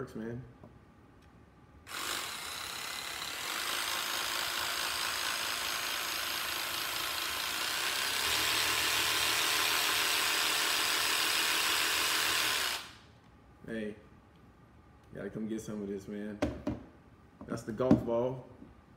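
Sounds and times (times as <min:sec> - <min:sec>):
jigsaw whirring buzz: 0:01.9 - 0:13.0.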